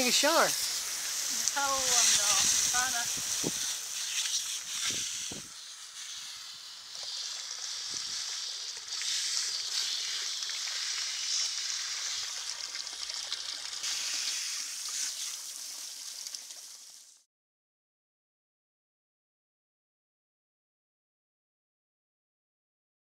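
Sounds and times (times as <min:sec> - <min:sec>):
garden hose spraying water: 0:00.0 - 0:17.3.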